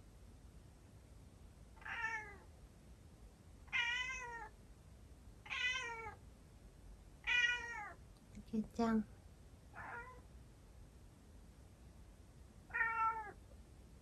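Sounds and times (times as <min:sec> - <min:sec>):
cat meowing: 0:01.8 - 0:02.4, 0:03.7 - 0:04.5, 0:05.4 - 0:06.2, 0:07.2 - 0:08.0, 0:09.8 - 0:10.2, 0:12.7 - 0:13.4.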